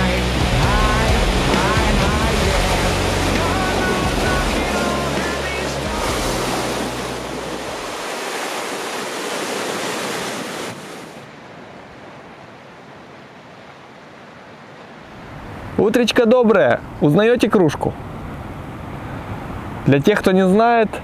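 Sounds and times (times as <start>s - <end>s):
background music: 0.0s - 7.9s
sea surf on shore: 0.0s - 21.0s.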